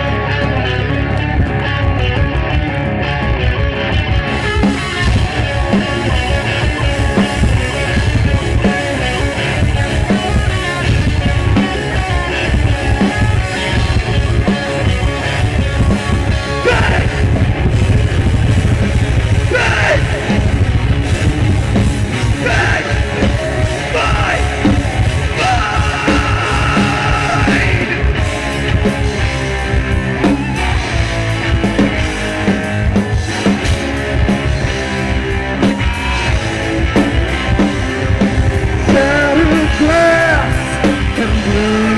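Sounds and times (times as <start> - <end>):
bass guitar: 0.0 - 41.9
distorted electric guitars: 0.0 - 41.9
drum kit: 0.0 - 41.9
person shouting vocals: 16.6 - 17.2, 19.4 - 20.2, 22.4 - 23.1.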